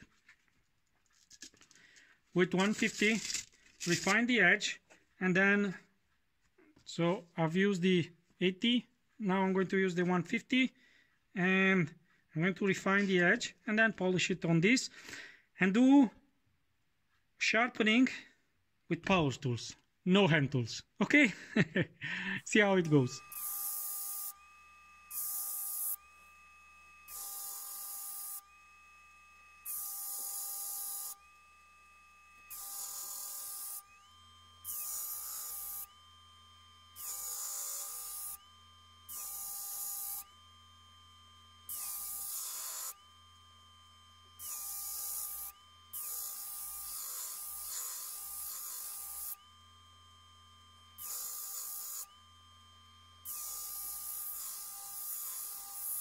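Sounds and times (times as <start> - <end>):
steel blade grinding on sander: 2.4 - 4.3, 22.6 - 50.0, 50.6 - 56.0
disc sander running: 22.7 - 56.0.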